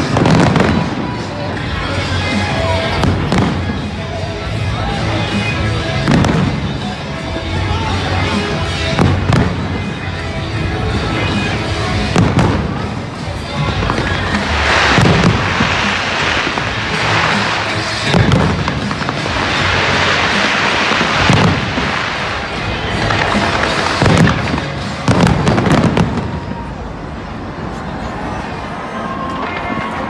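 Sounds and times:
fireworks crackling: 0.0 - 30.0.

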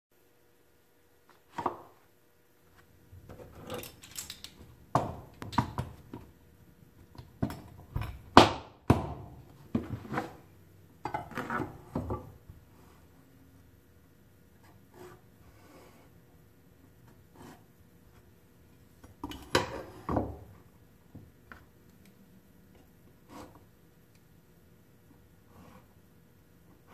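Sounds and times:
metal tools clattering: 3.5 - 4.6.

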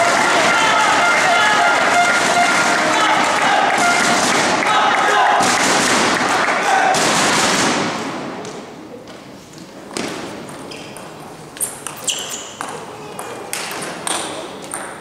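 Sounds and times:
crowd noise: 0.0 - 15.0.

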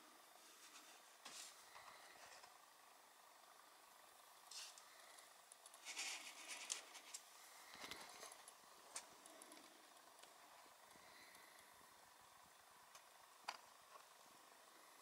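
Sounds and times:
faint rustles: 0.3 - 2.6.

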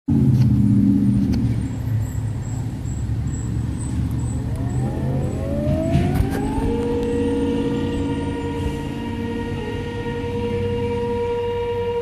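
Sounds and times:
low rumble: 3.3 - 11.2
warning sirens winding up: 3.3 - 12.0.

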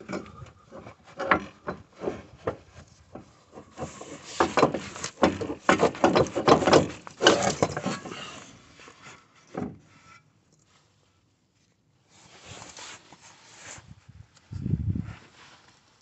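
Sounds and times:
metal parts clunking and rattling: 0.0 - 8.5.

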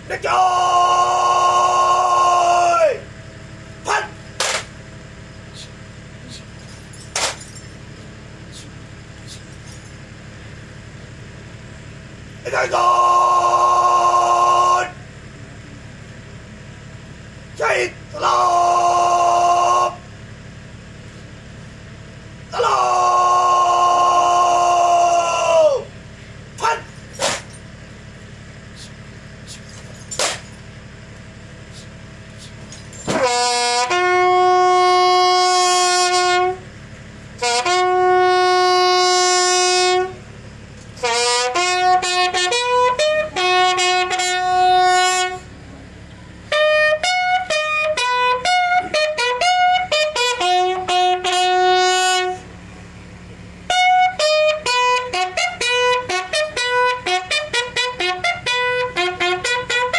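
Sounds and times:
bugle call: 0.1 - 4.8, 5.4 - 7.7, 12.2 - 15.2, 17.4 - 20.8, 22.4 - 27.7, 28.6 - 30.6, 31.6 - 52.6, 53.6 - 59.9.

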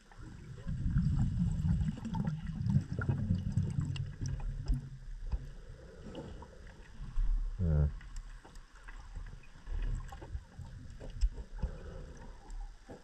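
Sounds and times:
underwater rumble of moving water: 0.0 - 13.0
faint clicks and ticks: 3.0 - 7.3, 7.9 - 13.0.

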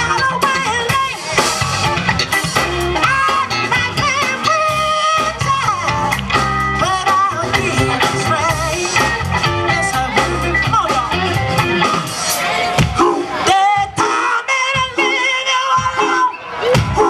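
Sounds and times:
woman singing into a microphone: 0.0 - 1.5, 3.0 - 6.1, 6.8 - 11.3, 13.0 - 16.4
electric guitar: 0.0 - 14.0
drum kit: 0.0 - 16.0
bass guitar: 0.0 - 17.0.

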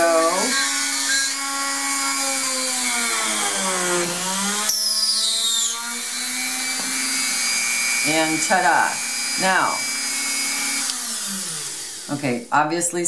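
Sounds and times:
rotary tool motor whine: 0.0 - 12.5
high falling squeal: 4.6 - 6.0.

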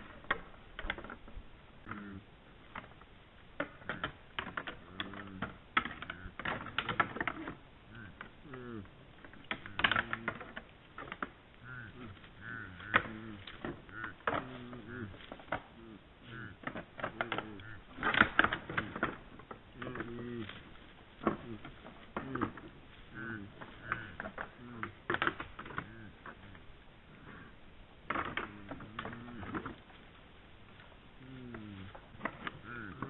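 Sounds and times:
deer low calls: 1.8 - 2.9, 3.5 - 33.0
antlers clacking together: 3.6 - 26.6.

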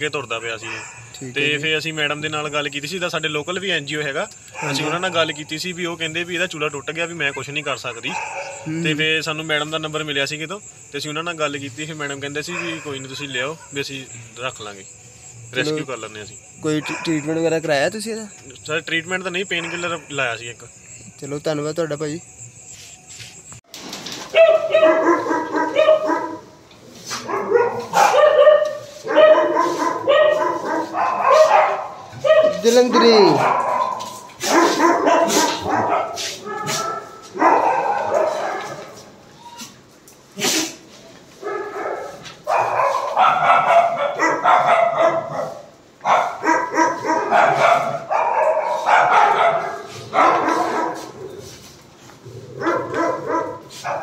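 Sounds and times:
dogs barking and yelping: 0.4 - 1.2, 4.4 - 5.8, 7.0 - 8.8, 12.3 - 13.9, 16.6 - 17.6, 19.4 - 20.2, 24.2 - 54.0.

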